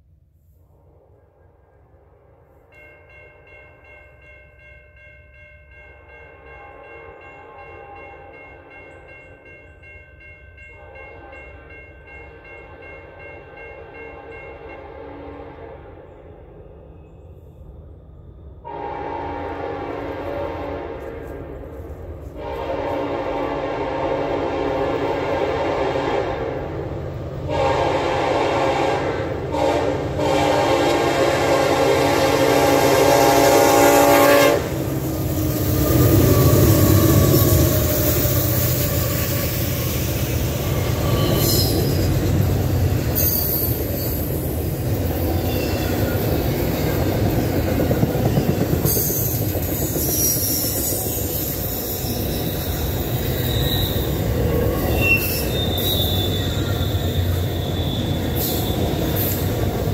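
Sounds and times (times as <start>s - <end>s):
crossing warning bell ringing: 2.6s - 15.1s, 30.2s - 59.9s
train horn blast: 10.8s - 11.7s, 14.0s - 16.1s, 18.6s - 26.8s, 27.4s - 41.9s, 54.8s - 59.4s.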